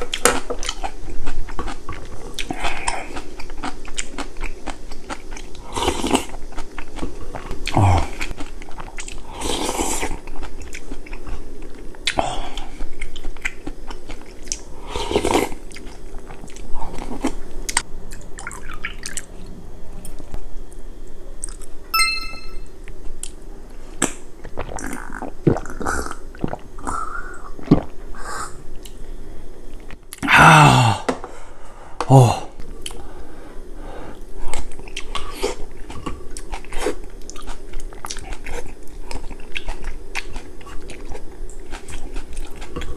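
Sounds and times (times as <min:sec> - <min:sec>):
chewing: 0:00.0 - 0:19.3, 0:34.5 - 0:42.9
glass clinking: 0:22.0 - 0:22.7.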